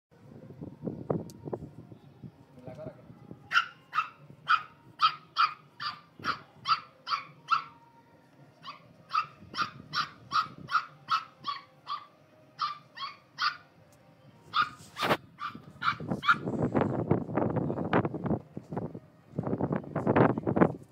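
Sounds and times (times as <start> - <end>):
puppy yapping high barks: 3.5 - 7.7, 8.6 - 13.6, 14.5 - 16.4.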